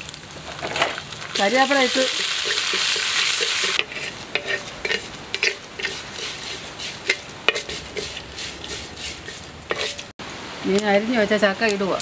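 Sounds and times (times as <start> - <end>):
loud sizzle: 0.0 - 12.0
spatula scraping metal pan: 2.1 - 10.1.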